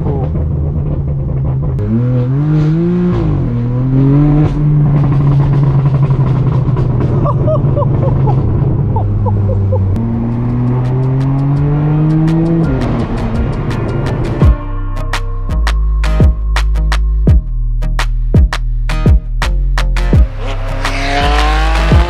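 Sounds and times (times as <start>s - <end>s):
car engine revving: 0.0s - 14.6s, 20.2s - 22.0s.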